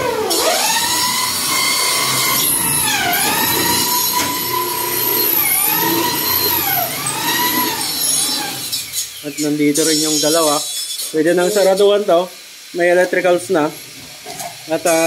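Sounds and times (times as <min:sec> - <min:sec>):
electric drill whining: 0:00.0 - 0:09.1.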